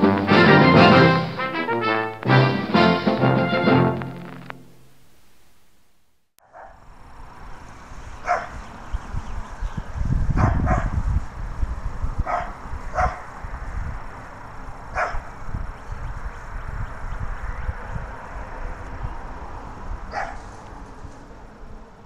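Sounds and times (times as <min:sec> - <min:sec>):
dog barking in the distance: 0:06.4 - 0:06.8, 0:08.2 - 0:08.6, 0:10.3 - 0:11.0, 0:12.2 - 0:13.4, 0:14.9 - 0:15.3, 0:20.1 - 0:20.5
wind rumble on microphone: 0:07.0 - 0:22.0.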